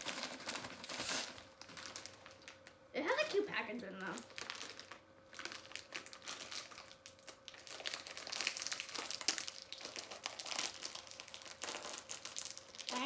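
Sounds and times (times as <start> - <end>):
plastic snack bag crinkling: 0.0 - 13.0.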